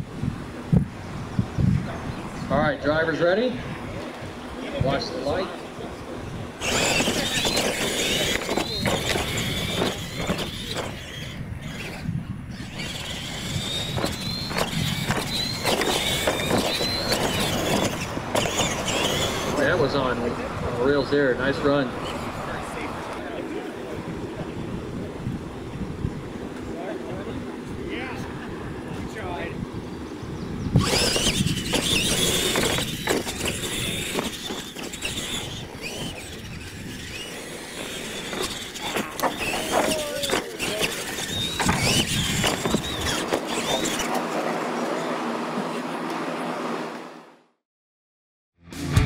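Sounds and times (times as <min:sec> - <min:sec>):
tyres on gravel: 0:06.5 - 0:12.0, 0:12.6 - 0:20.6, 0:30.8 - 0:46.2
electric motor whine: 0:06.5 - 0:20.9, 0:30.6 - 0:47.2
trucks landing with knocks: 0:13.8 - 0:19.5, 0:30.8 - 0:44.3.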